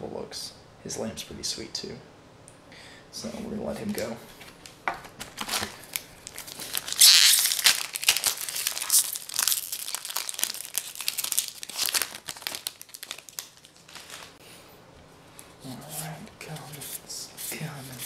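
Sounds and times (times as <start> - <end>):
foil wrapper crinkling: 5.0 - 14.4
foil wrapper tearing: 5.2 - 14.4.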